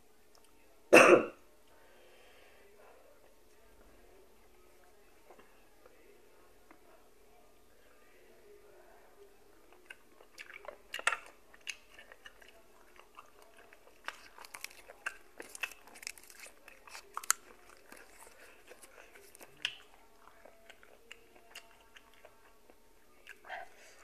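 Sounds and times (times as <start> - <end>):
person chewing: 9.8 - 23.4.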